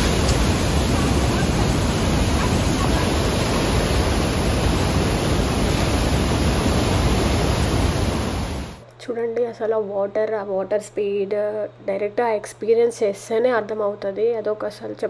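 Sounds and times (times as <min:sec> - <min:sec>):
waterfall rushing: 0:00.0 - 0:08.8.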